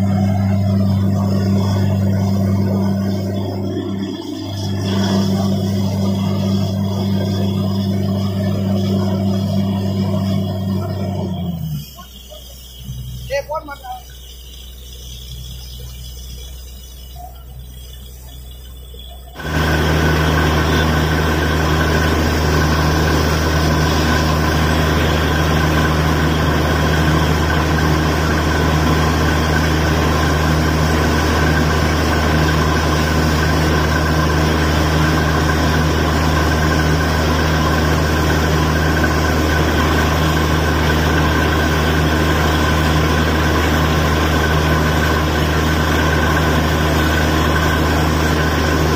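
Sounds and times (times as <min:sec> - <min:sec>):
water and air blowing out: 0:00.0 - 0:13.4, 0:19.4 - 0:48.9
drilling rig engine running: 0:00.0 - 0:48.9.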